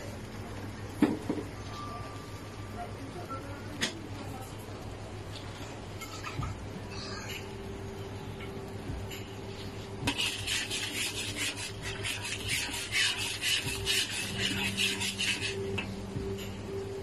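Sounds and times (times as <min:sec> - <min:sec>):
metal spatula scraping a wok: 0:10.1 - 0:15.7.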